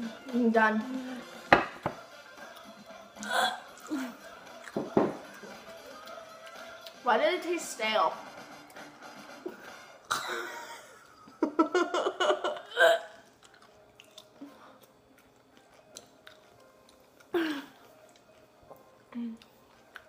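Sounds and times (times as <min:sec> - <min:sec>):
person chewing a pickle: 0:13.2 - 0:20.0.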